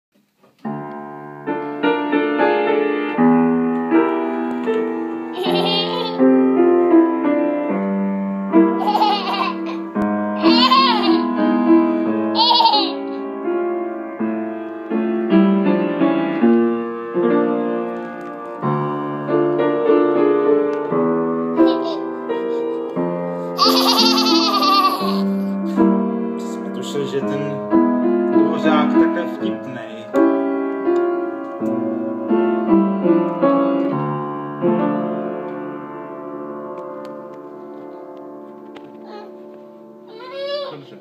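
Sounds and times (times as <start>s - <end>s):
piano playing: 0.6s - 41.0s
baby squealing and laughing: 5.3s - 6.2s, 8.8s - 11.3s, 12.3s - 13.2s, 21.6s - 22.0s, 23.6s - 25.6s, 39.0s - 39.4s, 40.1s - 40.9s.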